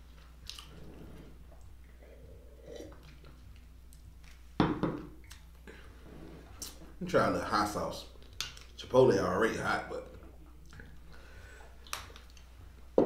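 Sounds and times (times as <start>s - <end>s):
faint eating sounds: 0.0s - 4.6s, 5.2s - 12.9s
dishware knocking on a table: 4.6s - 5.1s.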